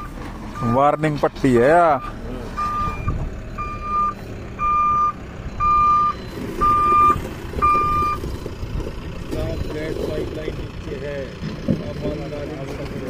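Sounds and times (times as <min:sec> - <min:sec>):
reversing alarm beeping: 0:00.0 - 0:01.3, 0:01.9 - 0:08.5, 0:09.3 - 0:10.3, 0:11.8 - 0:12.8
diesel engine running: 0:00.0 - 0:13.0.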